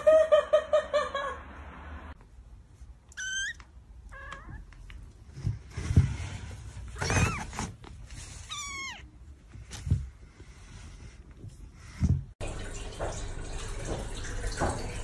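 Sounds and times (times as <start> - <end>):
cat meowing: 3.1 - 4.7, 8.4 - 9.1.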